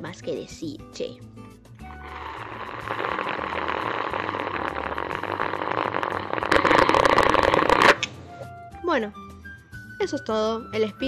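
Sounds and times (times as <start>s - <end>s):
dense crackling rustling noise: 2.0s - 8.0s.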